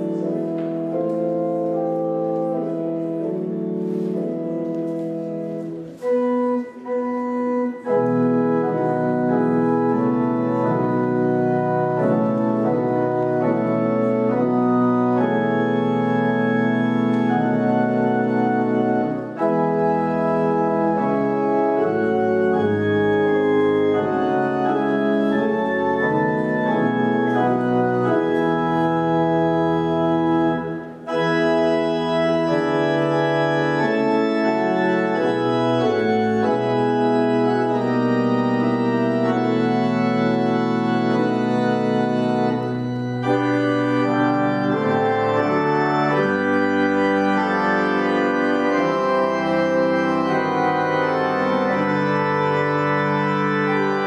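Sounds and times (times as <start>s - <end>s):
organ playing slow chords: 0.0s - 54.0s.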